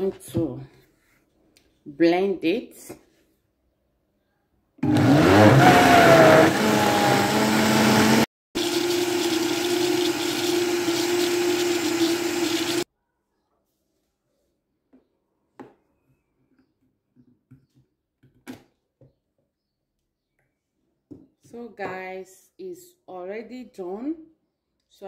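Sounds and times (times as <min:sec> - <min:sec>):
blender motor whining: 0:04.8 - 0:12.9.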